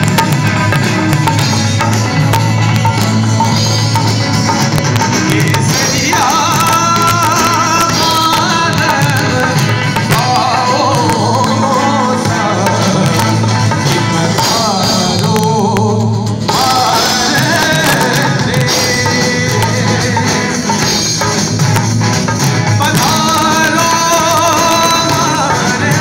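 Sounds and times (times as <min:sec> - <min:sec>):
drum kit: 0:00.0 - 0:26.0
guitars: 0:00.0 - 0:26.0
man singing: 0:05.0 - 0:21.6, 0:22.7 - 0:26.0.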